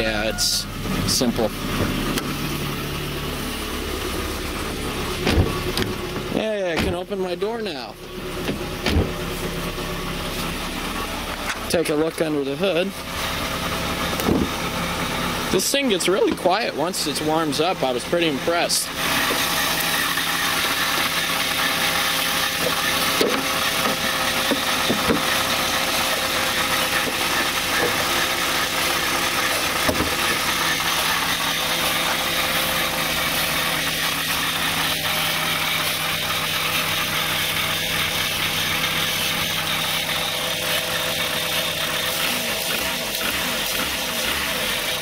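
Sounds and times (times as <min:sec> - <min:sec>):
car engine idling: 0:00.0 - 0:45.0.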